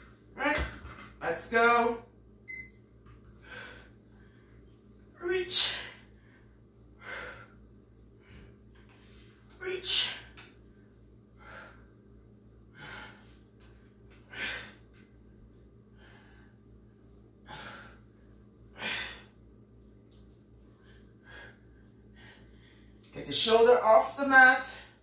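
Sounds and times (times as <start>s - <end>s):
woman breathing hard: 6.0s - 9.1s, 11.3s - 12.0s, 12.6s - 13.5s, 14.2s - 14.9s, 15.8s - 16.8s, 17.4s - 18.1s, 18.7s - 19.4s, 20.7s - 23.0s.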